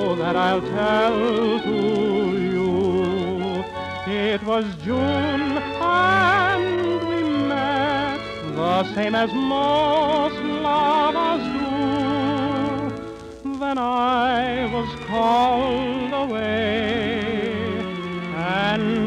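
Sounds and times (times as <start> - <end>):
orchestra playing: 0.0 - 13.3
man singing tenor with vibrato: 0.0 - 19.0.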